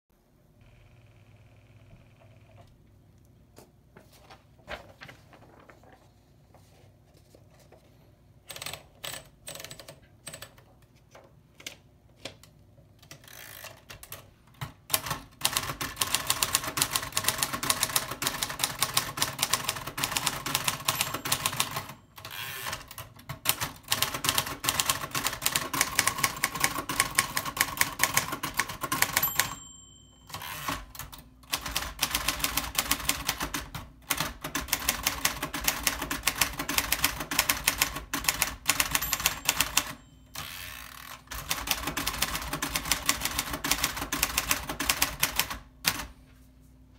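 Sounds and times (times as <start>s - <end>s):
fast typewriter typing: 8.5s - 10.6s, 13.1s - 29.7s, 30.3s - 46.1s
typewriter margin bell ding: 20.0s - 23.0s, 28.1s - 33.1s, 38.3s - 42.9s.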